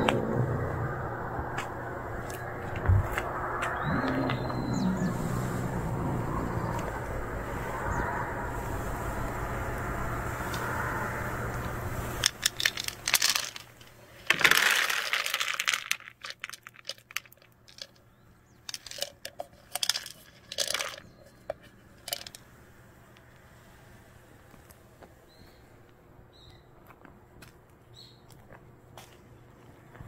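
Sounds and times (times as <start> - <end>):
steady background rumble: 0.0 - 30.0
kibble rattling against plastic: 12.2 - 22.4
plastic container lid crinkles: 12.3 - 18.0.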